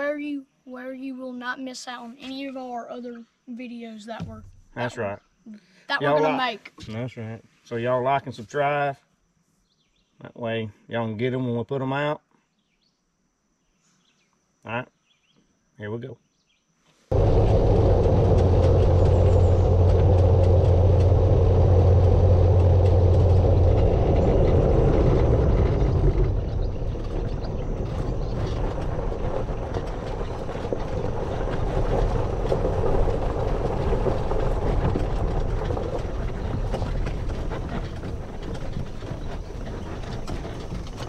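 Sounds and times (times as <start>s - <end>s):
golf cart driving: 17.1s - 41.0s
low wind rumble on microphone: 17.1s - 41.0s.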